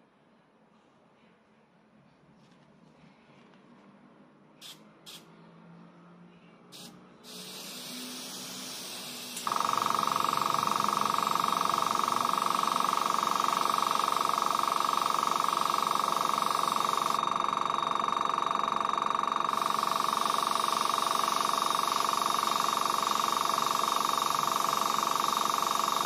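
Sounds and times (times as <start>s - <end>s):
airbrush air hissing: 6.8s - 9.5s
compressor motor pulsing hum: 6.8s - 26.0s.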